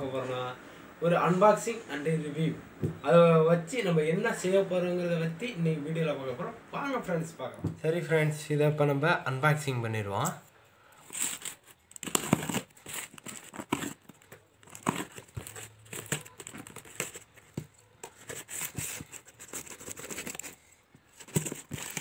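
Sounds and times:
crinkling rustles: 10.2 - 22.0
packing tape tearing: 11.0 - 22.0.

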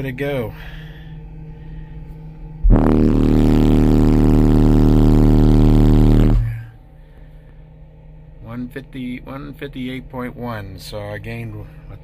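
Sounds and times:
deep bass tone with buzzing edge: 1.2 - 7.2.

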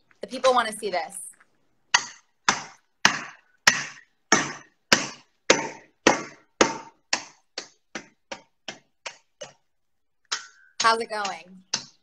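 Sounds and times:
saucepan pounding on chocolate: 1.9 - 9.7, 10.3 - 12.0.

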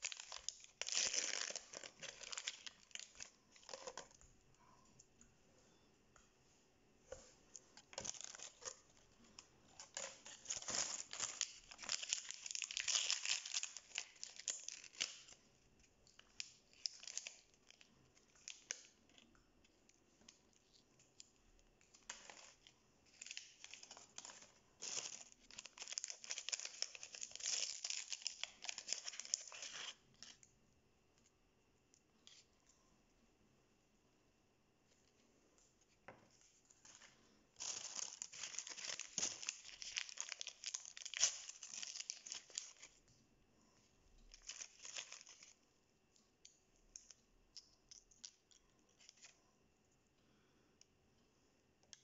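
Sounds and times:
wrapper bags crinkling and tearing: 0.0 - 4.1, 7.9 - 8.8, 9.8 - 15.4, 22.0 - 30.0, 37.6 - 43.0, 44.3 - 45.5.

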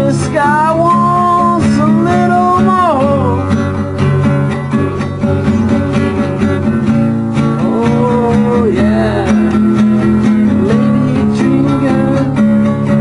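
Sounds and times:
acoustic guitar strumming: 0.0 - 13.0.

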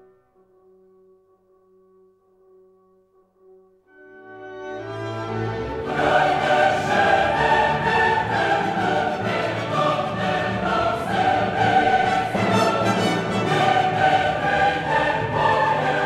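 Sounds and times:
choir singing with orchestra: 4.5 - 16.0.

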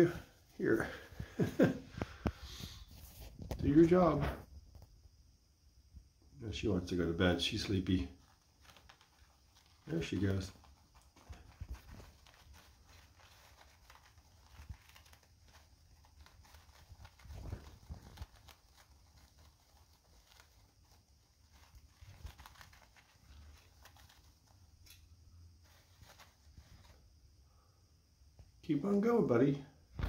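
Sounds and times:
toilet paper rustling: 7.4 - 25.0, 25.6 - 27.1.

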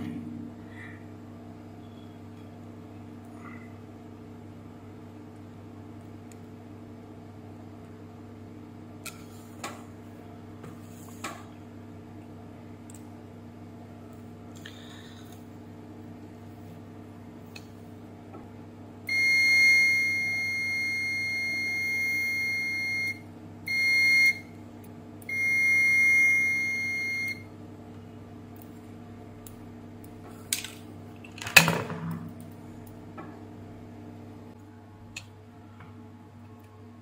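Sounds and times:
meter continuity beeps: 19.1 - 24.6, 25.3 - 27.5.

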